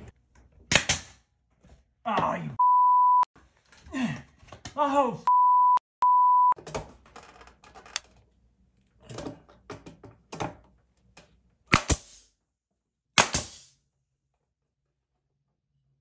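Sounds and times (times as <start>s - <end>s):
censor bleeps: 2.6s - 3.3s, 5.3s - 6.6s
nail gun firing: 11.7s - 12.2s, 13.2s - 13.7s.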